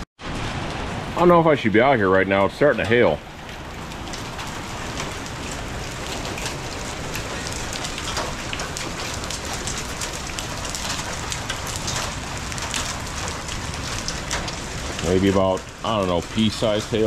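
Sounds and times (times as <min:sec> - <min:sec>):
rain hissing on concrete: 0:00.2 - 0:17.0
hailstones ticking: 0:00.4 - 0:17.0.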